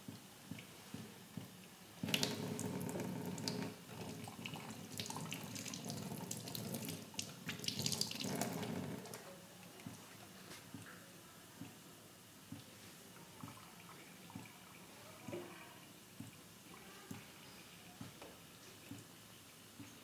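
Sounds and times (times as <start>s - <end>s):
water running and splashing: 2.0s - 9.2s.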